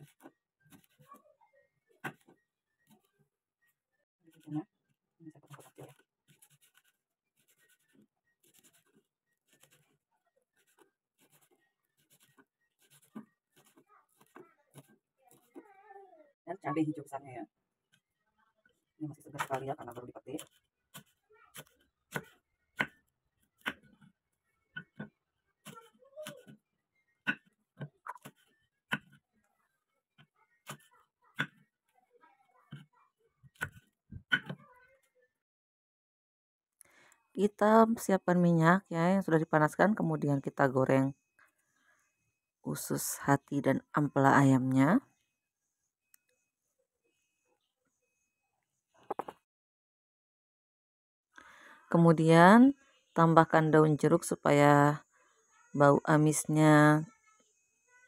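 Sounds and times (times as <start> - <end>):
knife chopping on wooden board: 27.3 - 29.2, 30.6 - 31.7.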